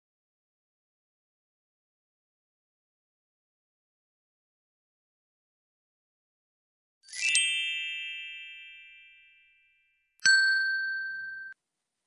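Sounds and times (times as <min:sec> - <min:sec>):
shimmering chime: 0:07.1 - 0:11.6
sharp bell ding: 0:10.2 - 0:11.6.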